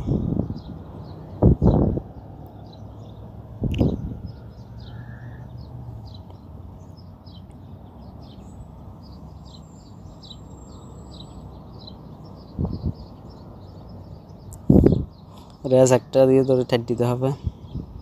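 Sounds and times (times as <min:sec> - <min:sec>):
bird chirping: 0:00.0 - 0:18.0.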